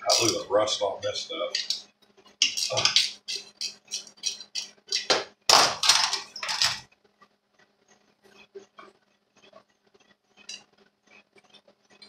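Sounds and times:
metal parts clinking and rattling: 0:05.8 - 0:06.9.

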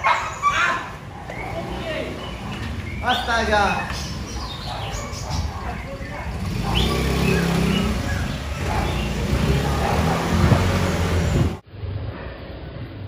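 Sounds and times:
indistinct voices: 0:00.4 - 0:10.9
vehicle engine rumbling: 0:00.8 - 0:13.0.

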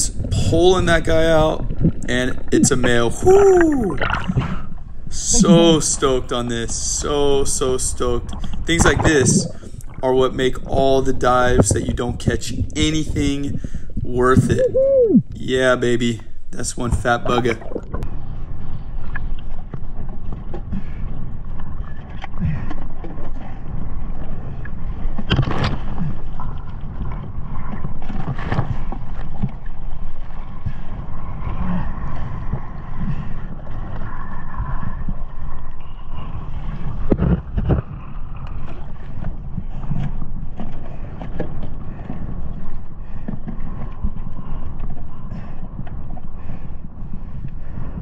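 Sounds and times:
sea water sloshing and splashing: 0:00.0 - 0:15.2, 0:16.1 - 0:48.0
wind buffeting microphone: 0:00.0 - 0:48.0.

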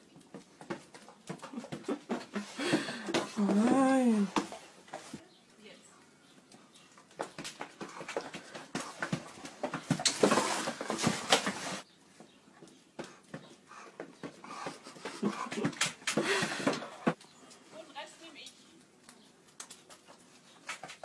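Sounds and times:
scuffling: 0:01.7 - 0:05.2.

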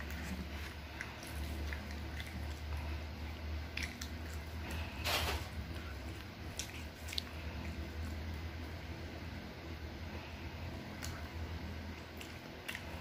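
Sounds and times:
low steady hum: 0:00.0 - 0:13.0
seaweed snack crunching: 0:05.7 - 0:08.4.

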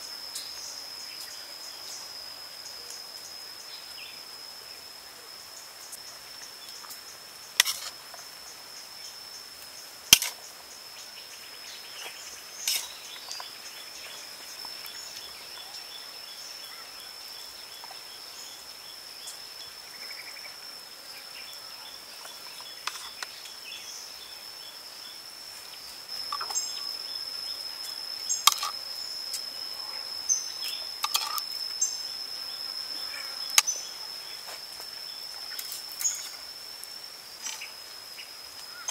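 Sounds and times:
high-pitched insect trill: 0:00.0 - 0:38.9.

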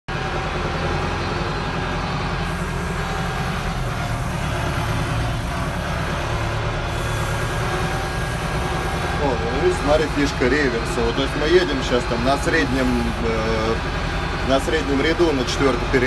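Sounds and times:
tractor diesel engine running: 0:00.1 - 0:16.0.

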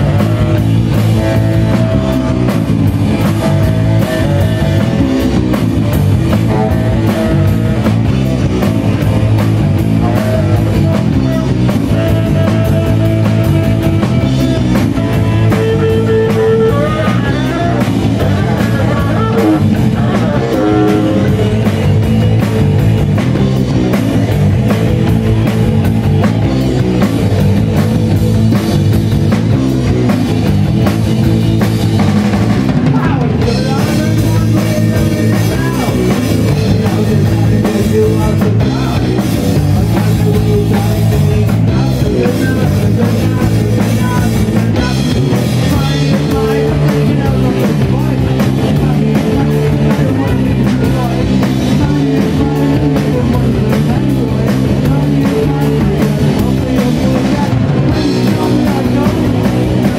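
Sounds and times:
bass: 0:00.0 - 0:59.9
distorted electric guitar: 0:00.0 - 0:59.9
drum kit: 0:00.0 - 0:59.9
man singing into microphone: 0:14.9 - 0:22.3, 0:32.8 - 0:59.9.

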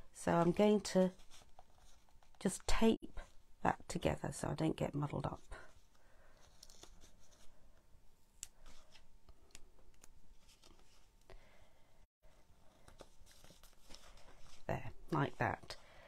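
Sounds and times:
paper rustling: 0:00.4 - 0:02.4, 0:05.7 - 0:07.6, 0:12.3 - 0:14.7.

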